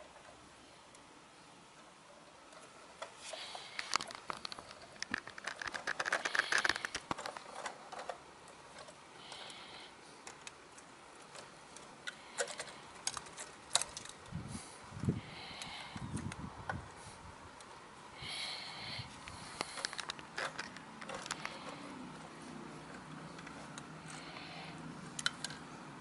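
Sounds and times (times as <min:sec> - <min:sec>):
toy truck clicking and rattling: 0:02.5 - 0:14.3, 0:19.6 - 0:25.7.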